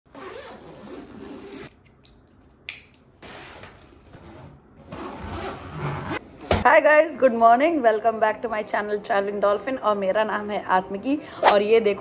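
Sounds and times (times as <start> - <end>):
suitcase zipper rasping: 0.1 - 1.7, 4.2 - 6.2.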